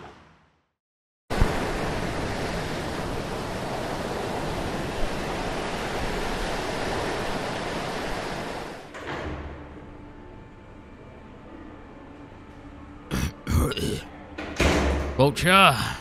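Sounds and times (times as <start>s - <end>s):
ocean waves rushing: 1.3s - 8.9s.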